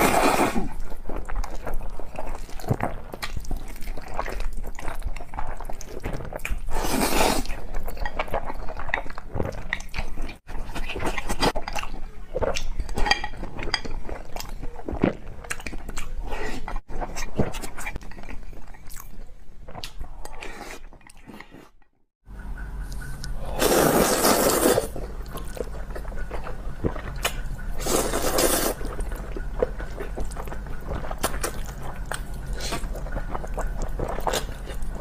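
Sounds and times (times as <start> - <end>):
person slurping noodles: 0.0 - 0.8, 6.7 - 7.6, 23.5 - 25.0, 27.8 - 28.9
wet chewing mouth sounds: 0.0 - 21.8, 22.9 - 35.0.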